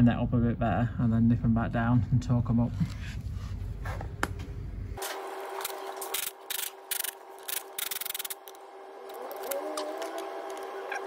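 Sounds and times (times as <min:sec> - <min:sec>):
ratchet wrench clicking: 0:06.2 - 0:08.6.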